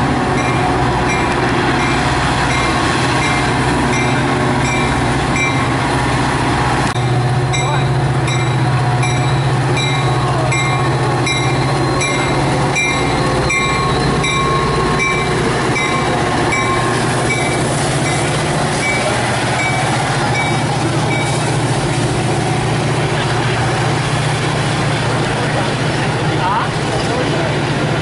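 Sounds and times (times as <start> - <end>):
diesel locomotive engine drone: 0.0 - 28.0
train wheels on rails: 0.0 - 28.0
train bell ringing: 0.3 - 5.9, 7.0 - 21.6.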